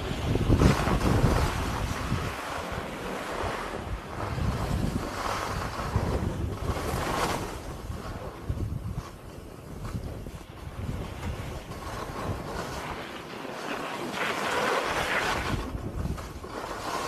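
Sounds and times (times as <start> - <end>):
skis scraping over snow: 0.0 - 17.0
wind buffeting microphone: 0.0 - 17.0.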